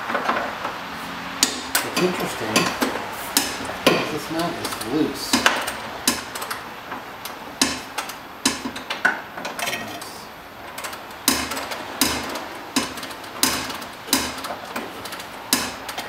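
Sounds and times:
ratchet clicking: 10.7s - 16.0s.

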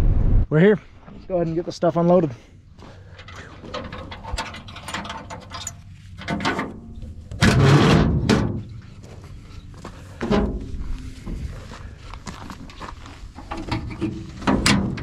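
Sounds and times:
metal latch clicking and rattling: 3.2s - 7.6s
metal gate clattering open: 3.2s - 8.7s.

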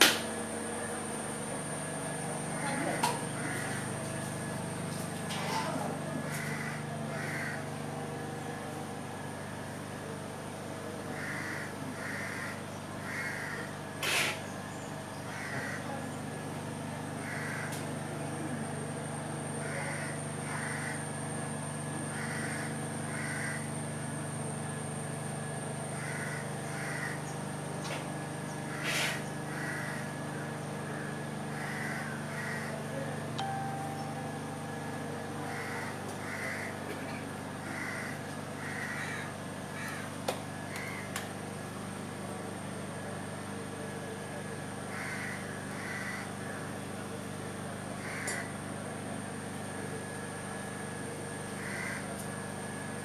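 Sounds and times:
steady low hum: 0.0s - 53.0s
crows cawing: 2.5s - 4.0s, 6.2s - 7.8s, 11.0s - 14.4s, 15.3s - 16.0s, 17.2s - 17.9s, 19.6s - 21.1s, 22.1s - 23.9s, 25.9s - 27.3s, 28.7s - 33.0s, 35.4s - 41.2s, 44.9s - 46.7s, 48.0s - 48.6s, 51.6s - 52.1s.

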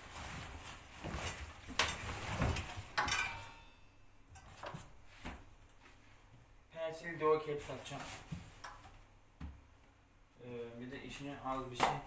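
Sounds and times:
fabric bags rustling: 0.0s - 3.0s.

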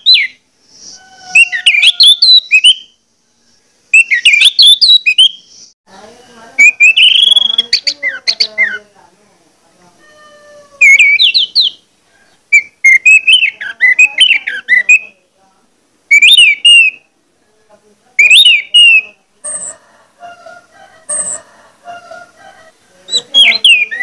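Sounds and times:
bird singing whistled phrases: 0.0s - 3.0s, 3.9s - 5.7s, 6.6s - 8.8s, 10.8s - 11.8s, 12.5s - 15.1s, 16.1s - 17.0s, 18.2s - 19.7s, 23.1s - 24.0s.

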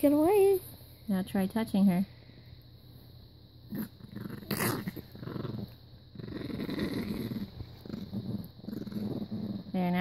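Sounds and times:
small dog growling and snarling: 3.6s - 10.0s.

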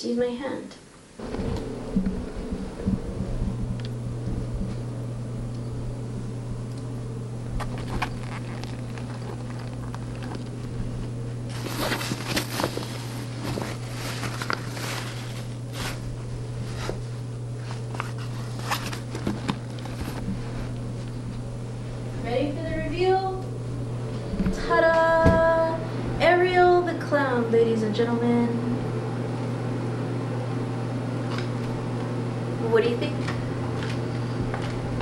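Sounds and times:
low hum: 1.2s - 32.6s
clothes rustling: 7.6s - 22.0s.

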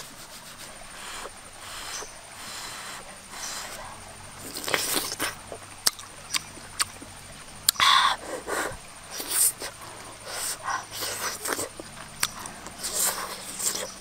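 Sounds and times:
person chewing with mouth clicks: 4.4s - 8.2s, 9.2s - 14.0s.

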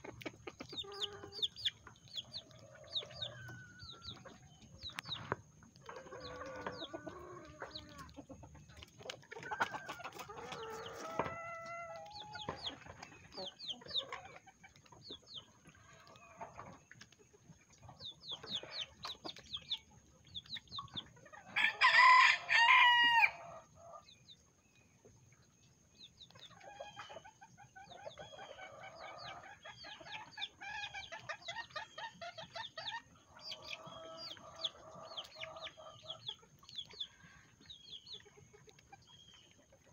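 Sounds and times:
chickens clucking and chirping: 0.0s - 39.9s
rooster crowing: 21.6s - 23.4s.

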